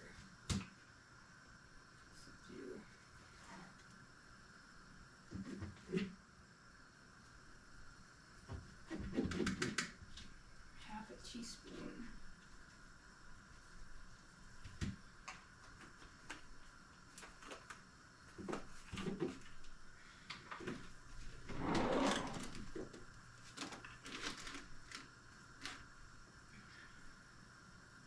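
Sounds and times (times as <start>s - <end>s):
rustling scrape: 21.4s - 22.8s
drawer sliding open: 21.4s - 23.0s.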